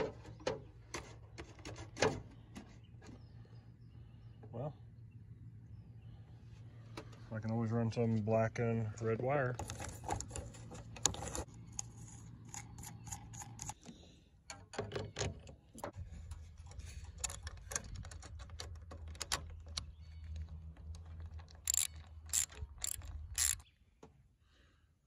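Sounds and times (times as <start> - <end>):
metal hardware clicking and clattering: 17.0 - 23.6
socket ratchet rasping: 21.2 - 23.6.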